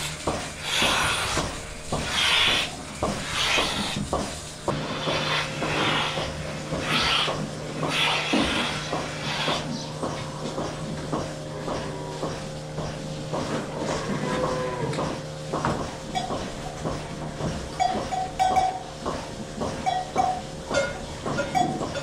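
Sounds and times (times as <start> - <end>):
steady mechanical hum: 0.0 - 22.0
knocks and clanks of stalls: 0.2 - 22.0
cows mooing: 13.6 - 15.2.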